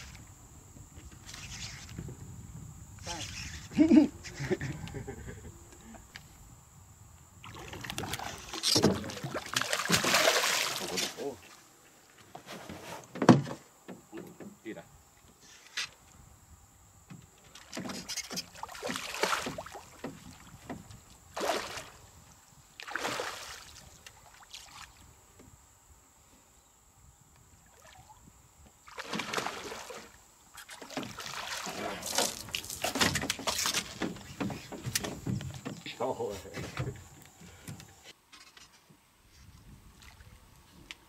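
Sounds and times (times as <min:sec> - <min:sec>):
fish splashing at water surface: 0:07.5 - 0:11.3, 0:18.5 - 0:19.9, 0:28.9 - 0:30.1.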